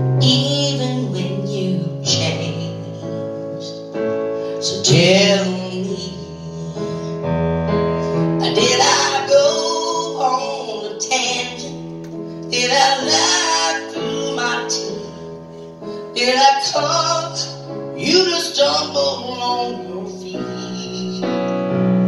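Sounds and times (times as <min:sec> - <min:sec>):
electric keyboard chords: 0:00.0 - 0:22.0
woman singing into microphone: 0:00.2 - 0:02.9, 0:04.6 - 0:06.2, 0:08.4 - 0:11.8, 0:12.5 - 0:15.1, 0:16.2 - 0:21.3.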